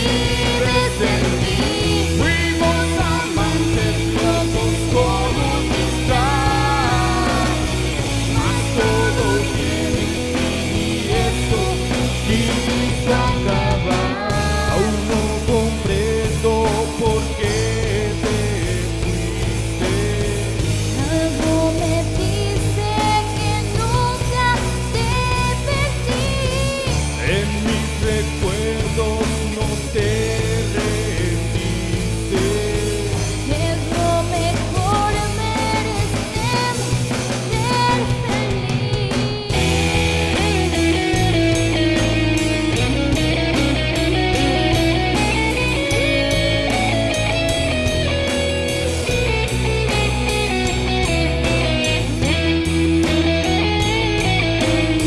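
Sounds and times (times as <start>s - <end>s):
drum kit: 0.0s - 55.0s
electric guitar: 0.0s - 55.0s
rock band playing: 0.0s - 55.0s.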